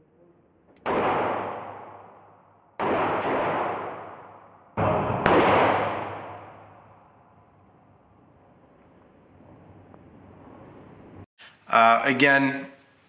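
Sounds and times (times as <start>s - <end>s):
pistol shots echoing indoors: 0.7s - 7.8s.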